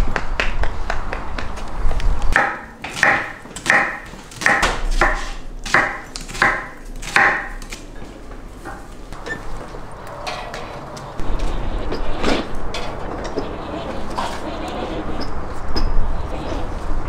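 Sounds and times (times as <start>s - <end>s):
knife chopping on wooden board: 2.3s - 7.8s.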